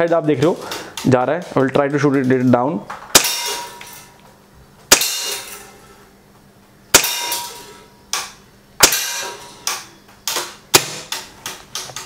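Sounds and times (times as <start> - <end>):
pistol shots with metallic ring: 3.1 - 3.8, 4.9 - 5.6, 6.9 - 7.6, 8.8 - 9.4.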